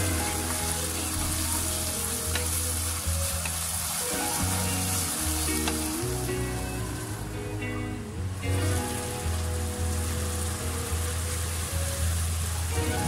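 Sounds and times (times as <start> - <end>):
vegetables sizzling in hot oil: 0.0 - 7.4.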